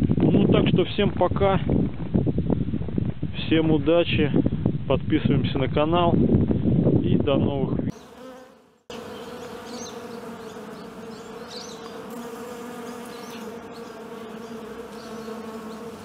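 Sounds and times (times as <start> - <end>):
honeybees buzzing: 7.9 - 16.0.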